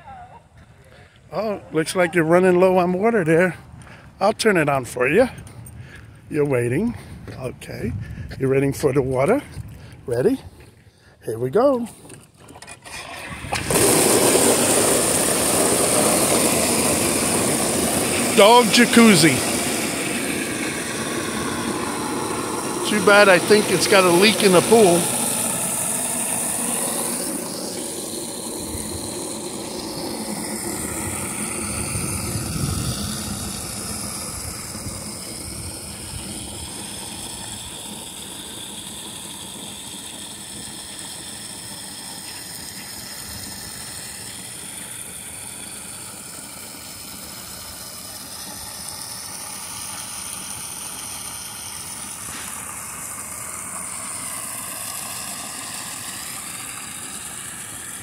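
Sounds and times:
water gushing into plastic pool: 0:12.4 - 0:58.0.

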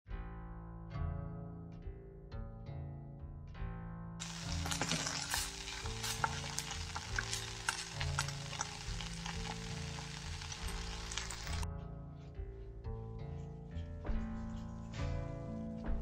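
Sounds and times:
background music: 0:00.3 - 0:16.0
greens sizzling in hot oil: 0:04.2 - 0:11.6.

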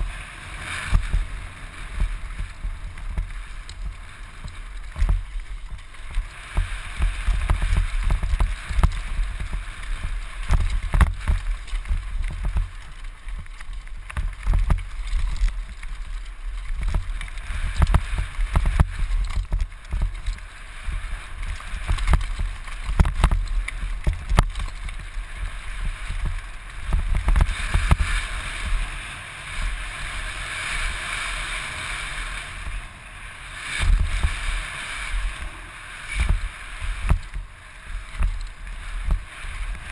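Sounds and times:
bike knocking and rattling: 0:00.0 - 0:39.9
wind buffeting microphone: 0:00.7 - 0:29.0.

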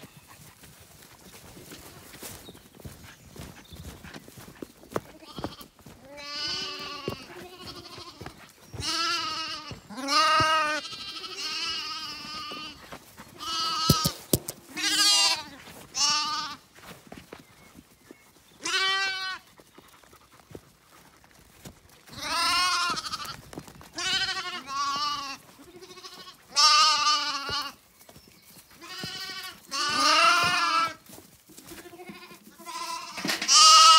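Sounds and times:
lambs bleating: 0:05.1 - 0:16.6, 0:18.6 - 0:19.5, 0:22.1 - 0:23.4, 0:24.0 - 0:27.8, 0:28.8 - 0:31.0, 0:31.7 - 0:33.9.

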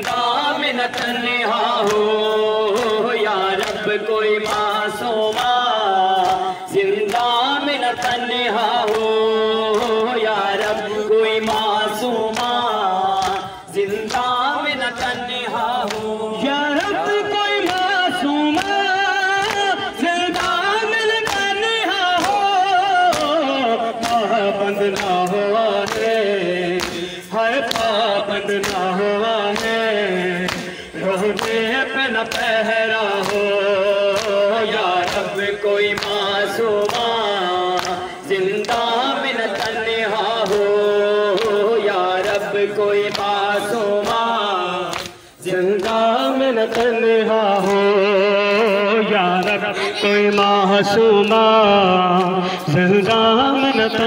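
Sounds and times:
man singing a lament into microphone: 0:00.0 - 0:54.0
men chanting along: 0:00.0 - 0:54.0
hands slapping chests: 0:02.7 - 0:16.2, 0:18.5 - 0:47.0.

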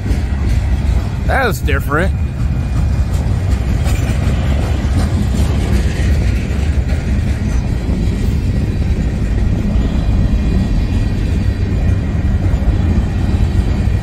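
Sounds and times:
freight train wheels rumbling: 0:00.0 - 0:14.0.

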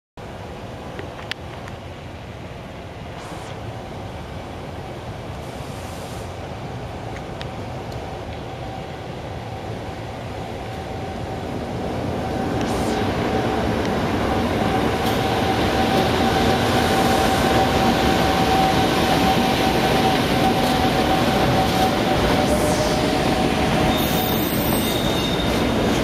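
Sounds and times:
train wheels rumbling on rail: 0:04.3 - 0:26.0
high-pitched whine: 0:08.5 - 0:26.0.

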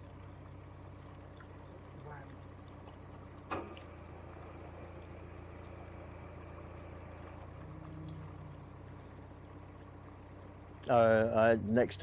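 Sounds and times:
diesel engine humming: 0:00.0 - 0:12.0.

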